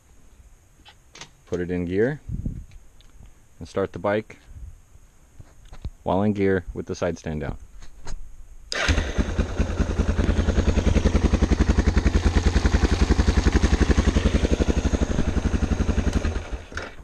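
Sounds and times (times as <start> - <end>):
motorcycle engine running: 8.8 - 17.0.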